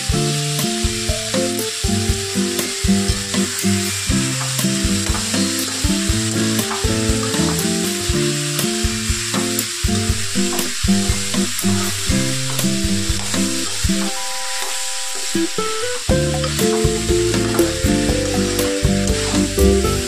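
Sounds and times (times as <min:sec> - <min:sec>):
vegetables sizzling in hot oil: 0:00.0 - 0:20.0
melodic tune: 0:11.6 - 0:20.0.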